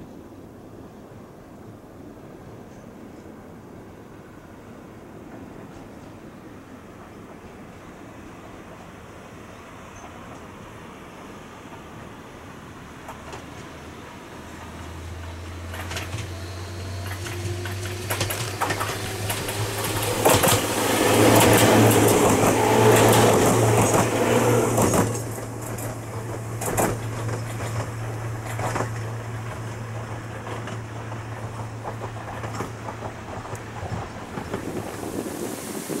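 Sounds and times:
train wheels clacking over rail joints: 13.0s - 36.0s.

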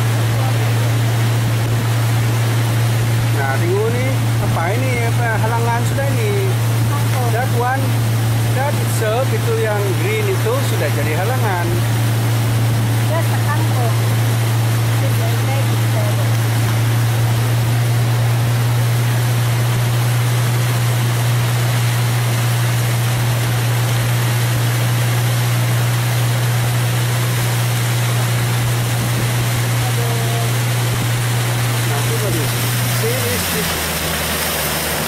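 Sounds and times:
motorboat engine humming: 0.0s - 35.0s
wind and water rushing: 0.0s - 35.0s.

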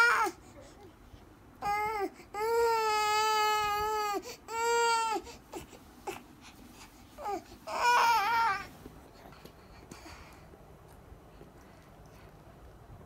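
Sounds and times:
infant crying: 1.6s - 6.2s, 7.2s - 8.7s.

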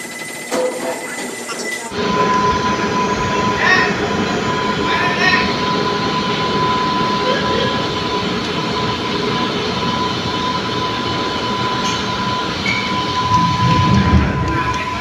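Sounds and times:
high mechanical whine: 0.0s - 15.0s
ramp mechanical rumble: 12.9s - 15.0s.

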